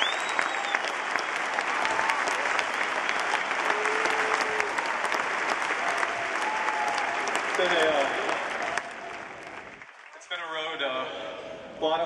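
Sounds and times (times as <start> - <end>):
whistle: 0.0 - 1.0
stadium crowd clapping and cheering: 0.0 - 11.0.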